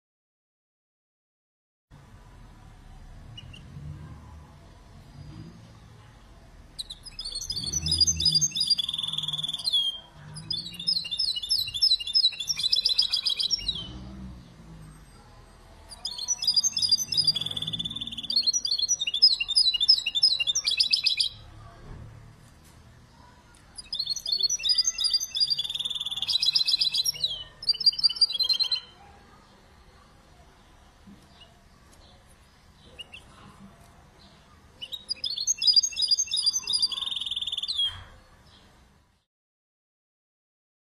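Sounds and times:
bird singing twittering trills: 6.8 - 14.5, 15.8 - 21.5, 23.8 - 29.0, 34.2 - 38.7.

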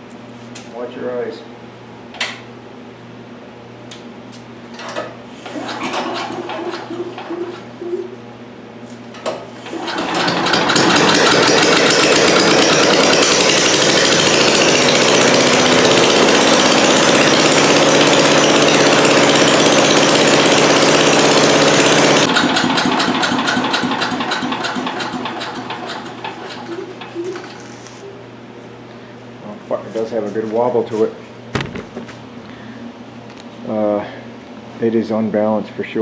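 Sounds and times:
small engine running without muffler: 9.6 - 27.7.

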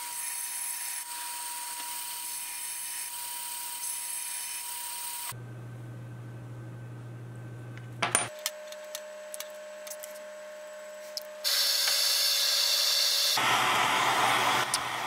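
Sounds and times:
propane forge hissing: 11.4 - 15.0.

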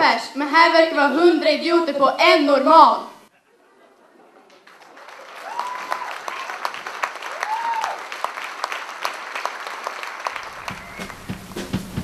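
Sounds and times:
audience applauding: 4.2 - 12.0
short high calls: 10.4 - 11.4
music: 10.4 - 12.0.

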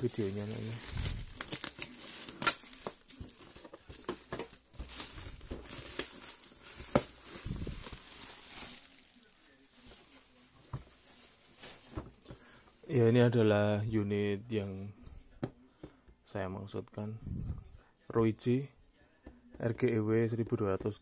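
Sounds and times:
plastic bag crinkling: 0.0 - 12.9
box being handled: 0.1 - 9.2.

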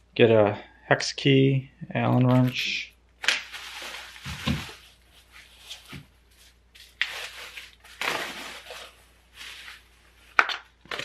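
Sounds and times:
bubble wrap crinkling: 3.2 - 11.0.

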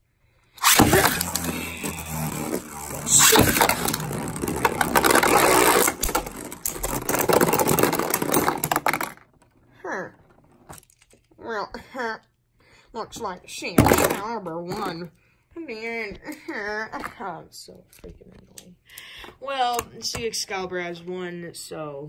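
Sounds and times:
spinning tops whirring and clashing: 0.6 - 9.2.

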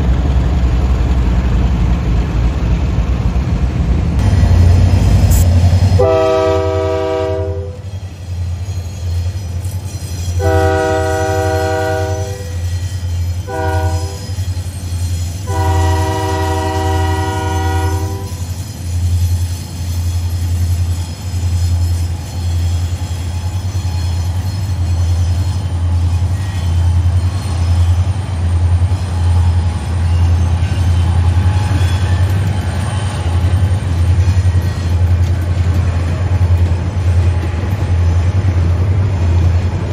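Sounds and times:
freight train rumbling past: 0.0 - 39.9
locomotive air horn: 6.0 - 7.9, 10.4 - 12.7, 13.4 - 14.4, 15.4 - 18.5.

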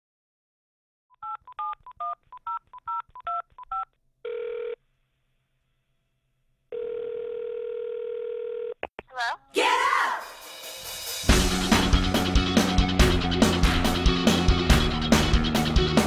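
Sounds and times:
telephone ringing tone: 1.2 - 4.8, 6.7 - 8.8
touch-tone dialing beeps: 1.2 - 4.8.

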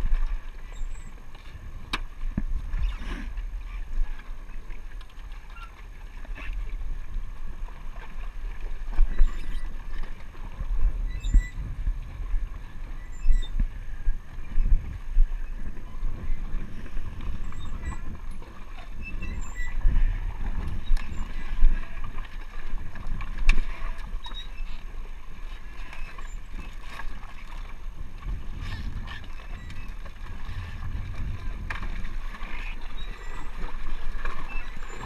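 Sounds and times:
low rumble: 30.0 - 32.4.

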